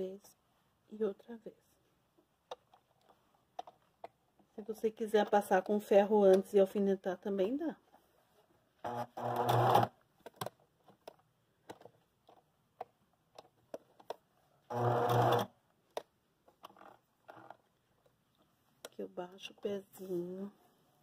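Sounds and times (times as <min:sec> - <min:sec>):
sewing machine stitching: 0:08.8 - 0:10.0, 0:14.7 - 0:15.5.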